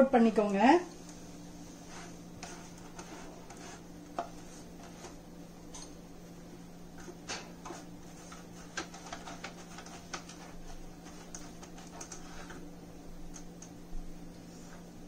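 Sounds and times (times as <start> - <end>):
steady low hum: 0.0 - 15.0
brush tapping crinkling foil tray: 7.0 - 12.7.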